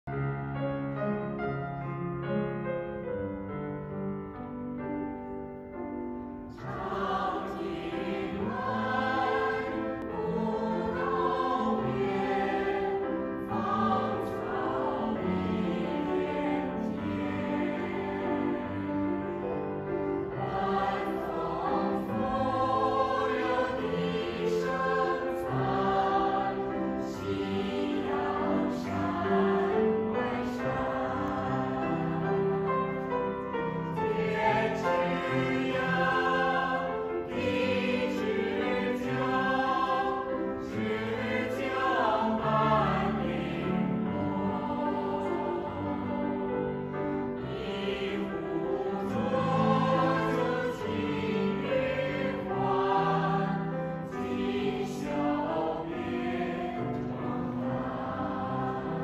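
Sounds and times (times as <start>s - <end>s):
grand piano: 0.0s - 59.0s
mixed choir singing: 6.4s - 59.0s.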